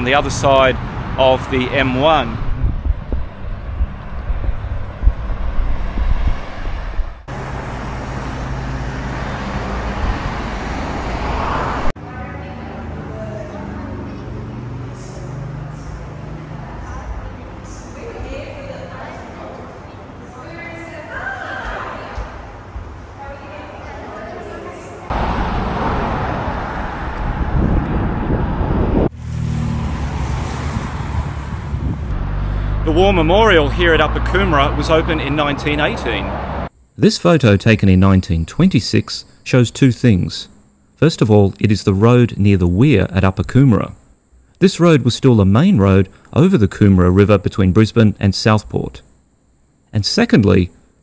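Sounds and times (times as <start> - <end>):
cars driving past: 0.0 - 17.7, 25.1 - 36.7
vehicle passing: 0.0 - 18.2, 25.1 - 36.7
road traffic: 0.0 - 20.6, 25.1 - 44.7
wind on microphone: 2.3 - 7.3, 26.0 - 29.2, 30.6 - 32.4.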